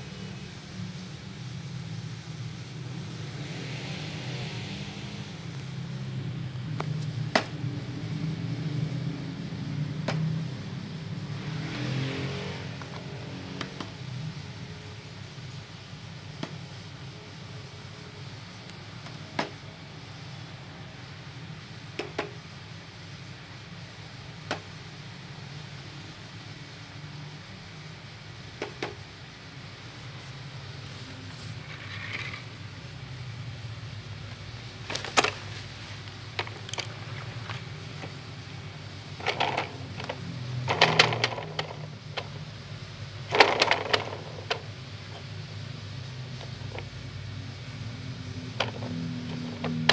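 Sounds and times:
plastic toy disc clicking: 39.2 - 42.4, 43.3 - 44.7.

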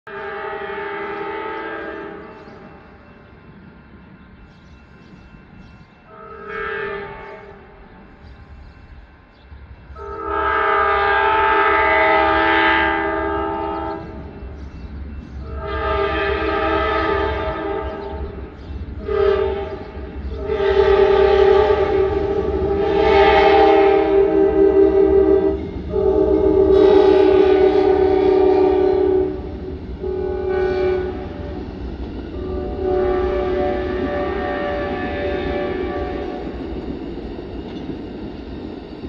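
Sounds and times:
locomotive air horn blasts: 0.1 - 2.6, 6.1 - 7.8, 10.0 - 14.2, 15.4 - 18.2, 19.0 - 31.7, 32.3 - 36.6.

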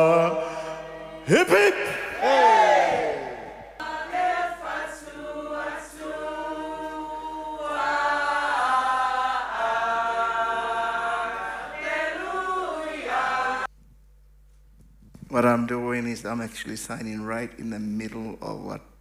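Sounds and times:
choir singing a hymn: 0.0 - 13.7.

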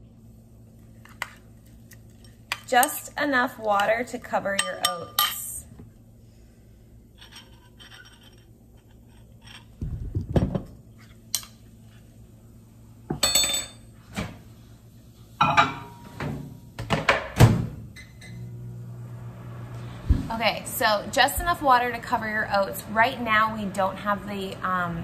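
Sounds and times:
spoon clinking on ceramic bowl: 4.6 - 5.5.

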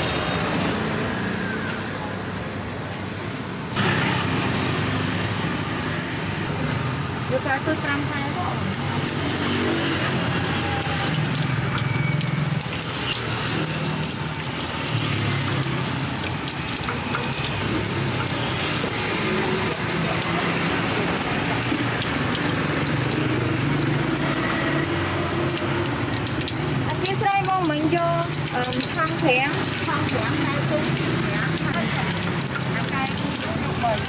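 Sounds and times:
rollers crushing sugarcane: 8.7 - 34.0.

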